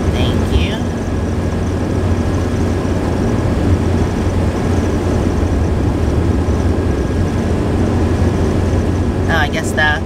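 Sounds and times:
vehicle road and engine drone: 0.0 - 10.0.

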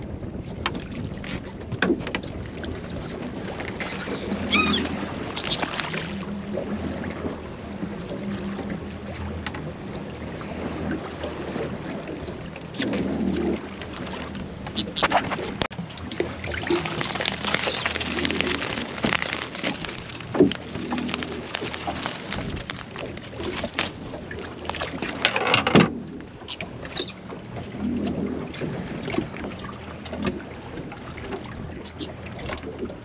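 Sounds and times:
water splashing against boat hull: 0.0 - 33.0
wind: 0.0 - 33.0
knocks and crackles: 14.6 - 26.0.

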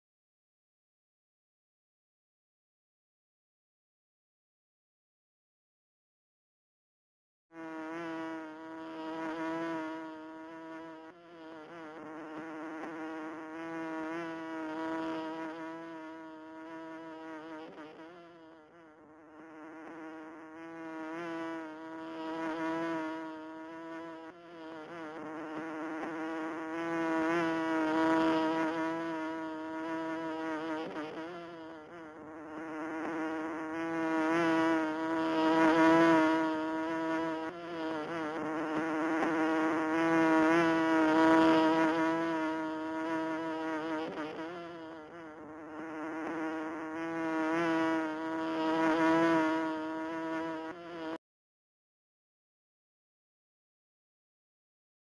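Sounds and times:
bee buzzing: 7.5 - 51.2.

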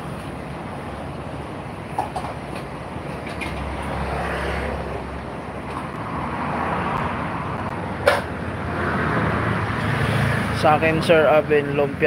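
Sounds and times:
street traffic noise: 0.0 - 12.0
sharp clack: 8.0 - 8.3.

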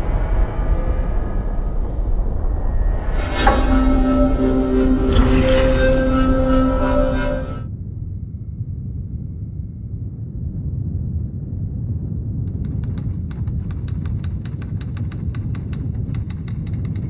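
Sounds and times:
low steady rumble: 0.0 - 17.0
sharp irregular clicks: 12.5 - 17.0.

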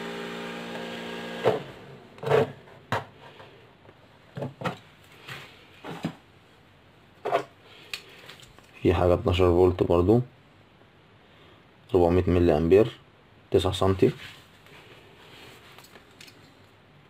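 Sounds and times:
cooling fan humming: 0.0 - 2.6
knocks and clicks of handling: 4.3 - 4.9.

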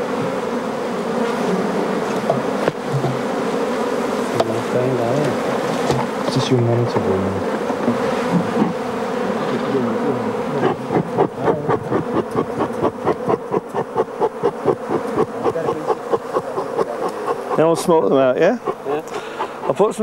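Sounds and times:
honeybees buzzing: 0.0 - 20.0
rapid regular pulsing: 10.5 - 20.0.

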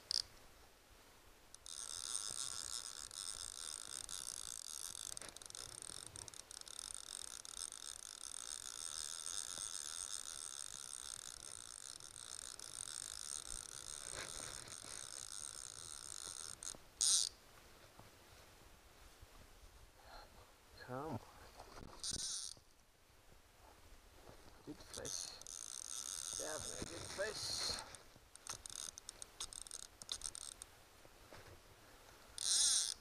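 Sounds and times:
fly reel ratchet buzzing: 0.0 - 0.3, 1.5 - 17.4, 21.9 - 22.6, 24.9 - 30.7, 32.4 - 33.0.

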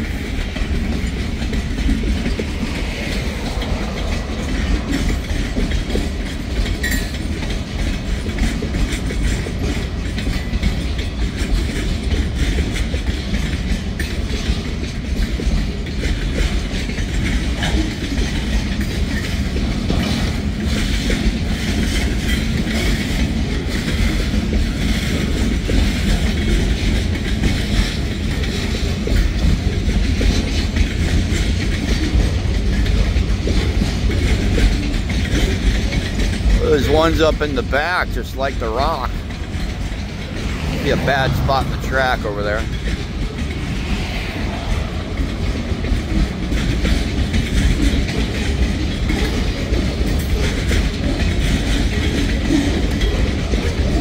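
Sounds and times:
freight train rumbling past: 0.0 - 54.0
wheels clacking over rail joints: 0.0 - 54.0.

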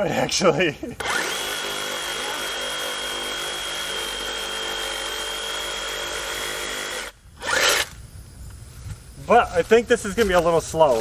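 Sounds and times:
reciprocating saw cutting wood: 1.0 - 8.0.

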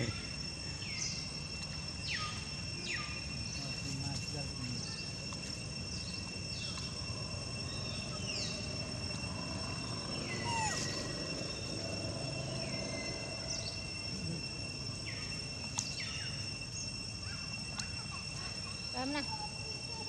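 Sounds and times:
high-pitched insect drone: 0.0 - 20.0
low background rumble: 4.3 - 20.0.

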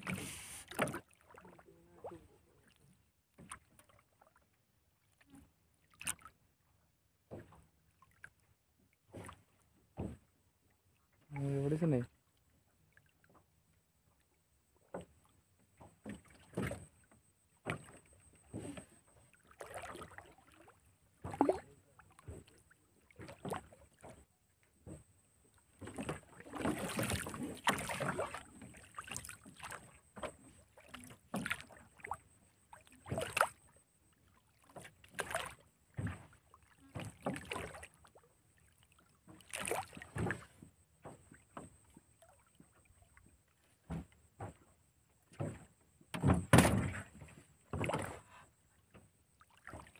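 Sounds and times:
fish splashing and thrashing: 17.7 - 24.2, 25.8 - 33.7, 34.5 - 37.9, 39.3 - 40.5
knocks on wooden boat: 45.3 - 48.1.

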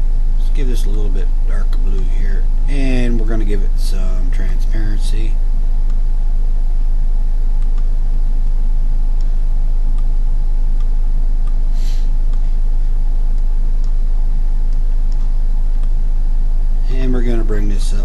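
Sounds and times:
electrical mains hum: 0.0 - 18.0
short hiss: 11.7 - 12.1.

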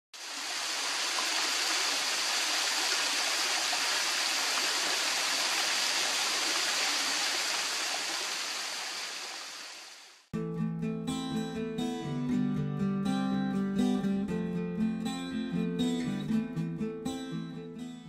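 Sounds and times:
small waterfall splashing into pool: 0.2 - 10.3.

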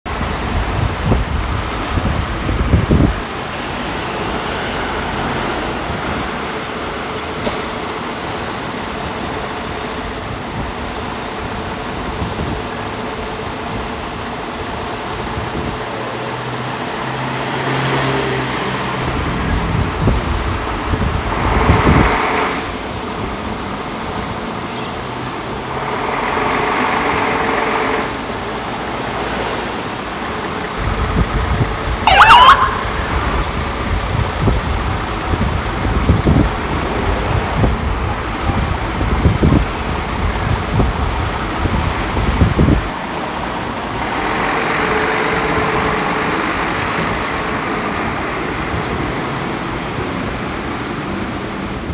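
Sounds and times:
diesel engine running: 0.2 - 2.8
siren whoop: 32.0 - 33.5.

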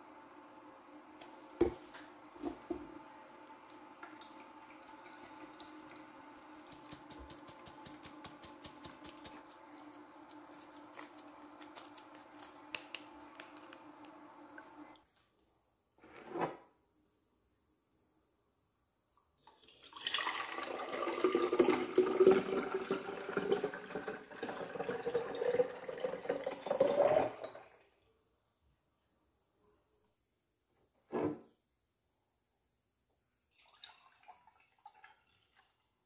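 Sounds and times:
faint steady hum: 0.0 - 15.9
juice dripping through a strainer: 3.0 - 15.0, 19.2 - 27.6, 33.5 - 36.0.

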